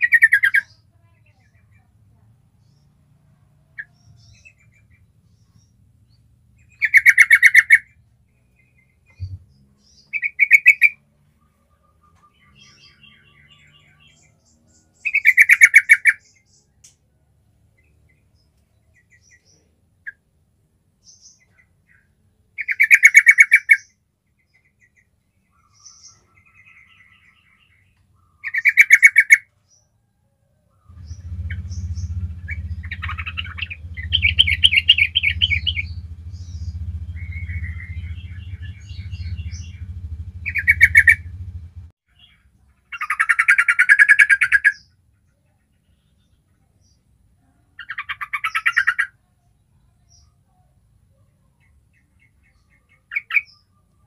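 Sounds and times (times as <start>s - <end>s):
bird singing rapid notes: 0.0s - 1.9s, 6.6s - 17.0s, 30.8s - 45.0s, 47.8s - 49.2s
quiet bird chirps: 0.0s - 54.0s
low steady hum: 30.9s - 42.0s.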